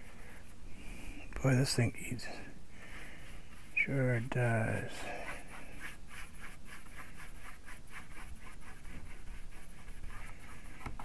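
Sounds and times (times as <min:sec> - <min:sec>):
paintbrush scratching on board: 0:03.2 - 0:11.0.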